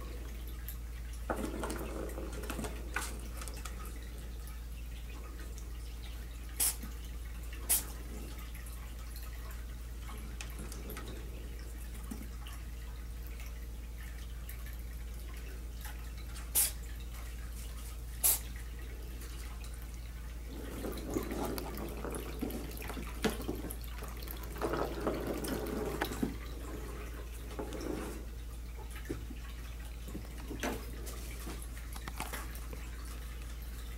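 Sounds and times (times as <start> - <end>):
plastic ball rattling around track: 20.6 - 26.4.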